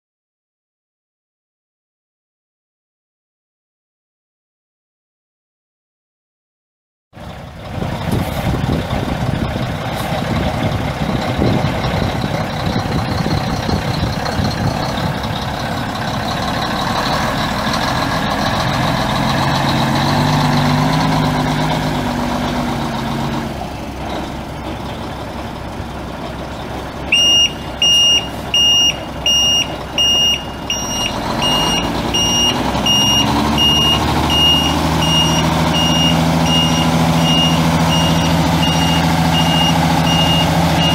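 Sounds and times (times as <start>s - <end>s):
truck diesel engine running: 7.2s - 40.9s
reversing alarm beeping: 27.1s - 40.9s.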